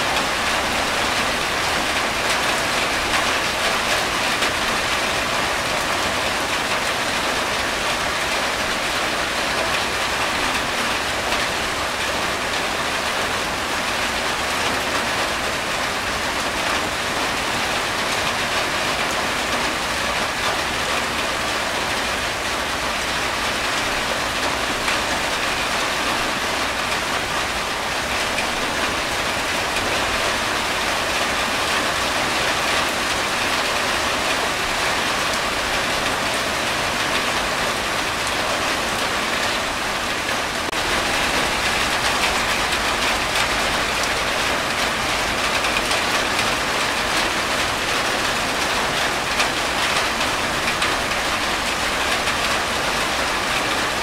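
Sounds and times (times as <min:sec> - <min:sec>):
rain on a tin roof: 0:00.0 - 0:54.0.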